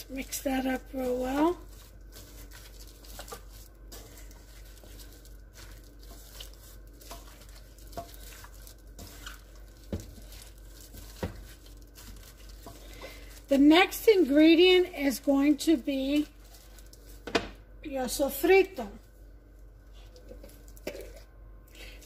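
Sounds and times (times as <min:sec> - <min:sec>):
wet squishing and rustling: 0:00.0 - 0:17.6.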